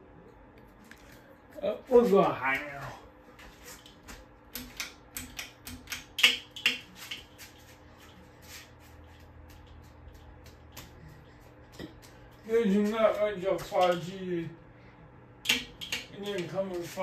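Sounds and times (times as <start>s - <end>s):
ceiling fan motor hum: 0.0s - 17.0s
irregular clicks and taps: 3.8s - 7.2s, 15.4s - 16.5s.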